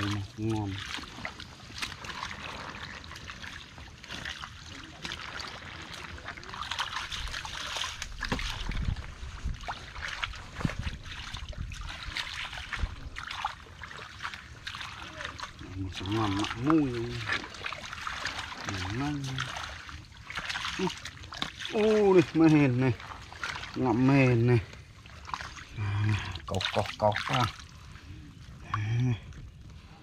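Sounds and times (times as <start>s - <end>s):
footsteps squelching in mud: 0.0s - 28.0s
heavy wet thuds: 7.9s - 13.3s.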